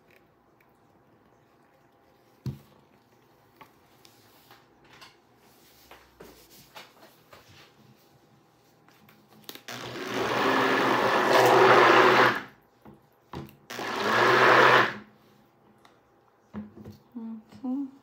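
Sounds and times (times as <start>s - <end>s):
stick blender motor whirring: 9.7s - 12.5s, 13.7s - 15.0s.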